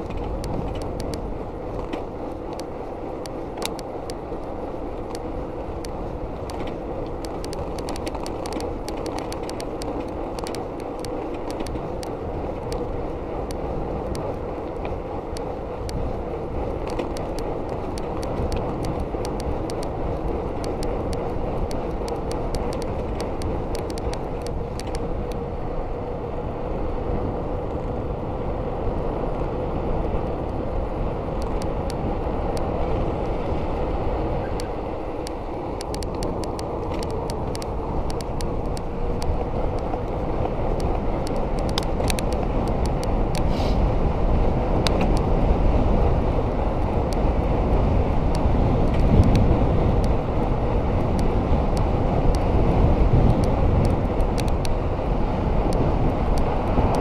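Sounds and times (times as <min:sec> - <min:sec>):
bike clicks and rattles: 0:00.0 - 0:57.0
bike tyres rolling hum: 0:00.0 - 0:57.0
rushing air: 0:30.6 - 0:57.0.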